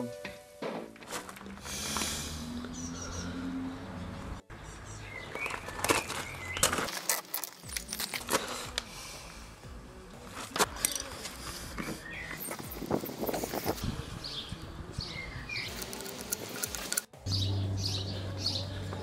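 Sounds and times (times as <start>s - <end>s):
birds chirping: 1.8s - 6.9s, 11.0s - 19.0s.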